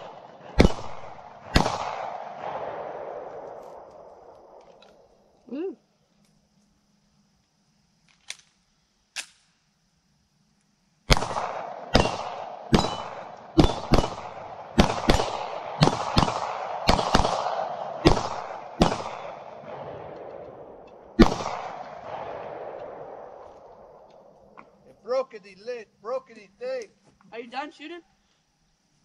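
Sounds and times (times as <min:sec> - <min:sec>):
pistol shots with echo: 0:00.0 - 0:04.6, 0:11.1 - 0:24.3.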